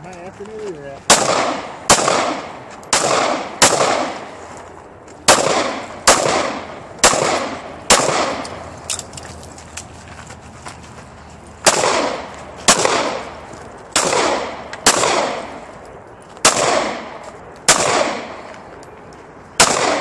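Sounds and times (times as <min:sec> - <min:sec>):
handgun shots echoing: 0:01.1 - 0:04.2, 0:05.3 - 0:09.0, 0:11.6 - 0:13.3, 0:13.9 - 0:15.6, 0:16.4 - 0:18.4, 0:19.6 - 0:20.0.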